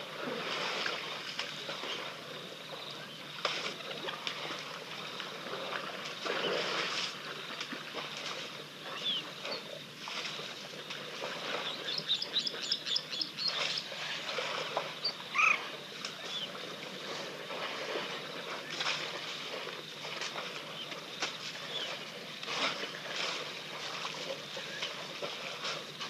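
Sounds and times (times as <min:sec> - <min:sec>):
elephants splashing through water: 0:00.0 - 0:26.0.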